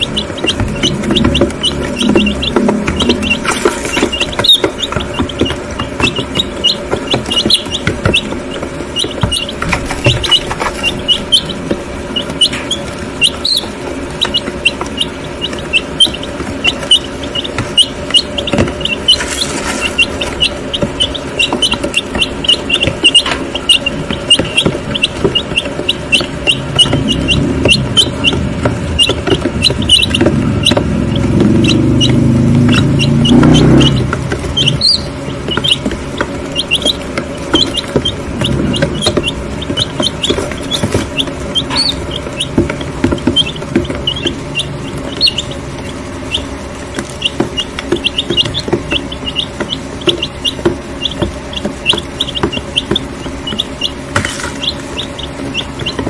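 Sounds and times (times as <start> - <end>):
beaks pecking feed: 0.0 - 56.0
chicks peeping: 0.0 - 56.0.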